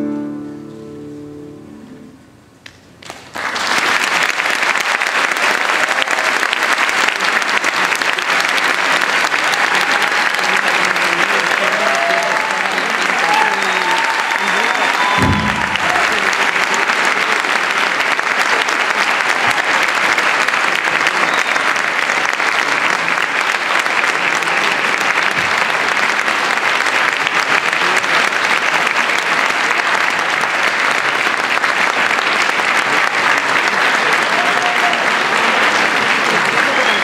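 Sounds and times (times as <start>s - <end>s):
audience applauding: 3.0s - 37.0s.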